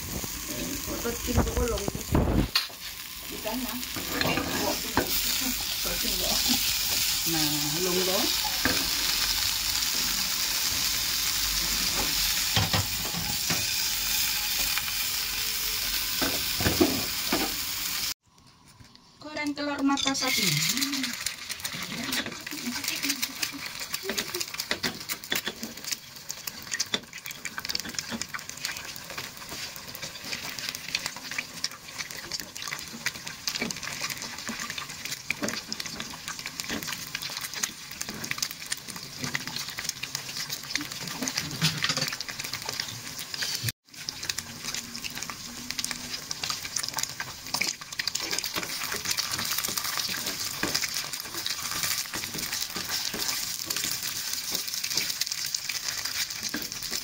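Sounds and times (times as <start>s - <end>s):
egg sizzling in hot oil: 0.0s - 18.2s, 19.9s - 57.0s.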